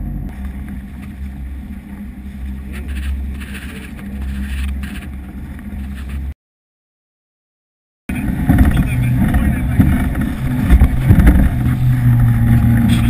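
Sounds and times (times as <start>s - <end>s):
boat motor drone: 0.0s - 6.3s, 8.1s - 13.0s
wind on microphone: 8.1s - 13.0s.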